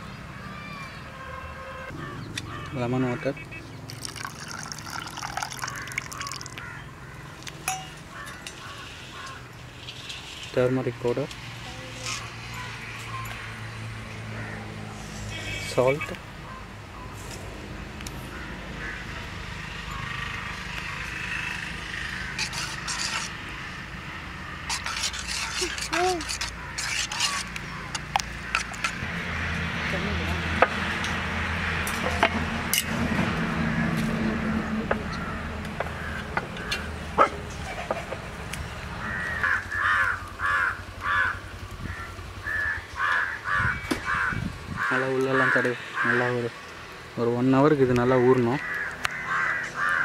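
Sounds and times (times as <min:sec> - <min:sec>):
crow cawing: 0:01.9 - 0:03.3, 0:05.2 - 0:07.4, 0:08.1 - 0:09.5, 0:14.3 - 0:14.7, 0:18.2 - 0:23.3, 0:24.4 - 0:29.0, 0:33.7 - 0:36.9, 0:39.0 - 0:46.6, 0:48.1 - 0:50.0.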